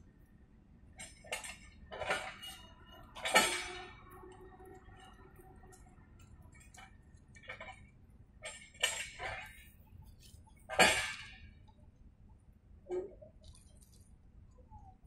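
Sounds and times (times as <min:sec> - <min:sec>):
metallic clanks of railway equipment: 0:00.8 - 0:11.8.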